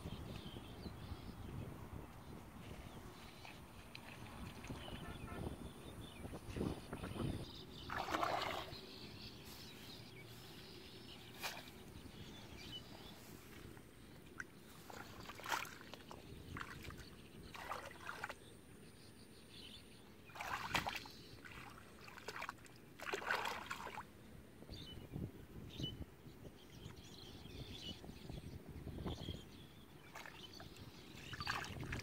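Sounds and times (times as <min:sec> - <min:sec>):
muddy water splashing: 0:03.2 - 0:05.4, 0:07.8 - 0:08.9, 0:11.3 - 0:11.9, 0:13.1 - 0:18.4, 0:20.2 - 0:24.1, 0:30.0 - 0:32.0.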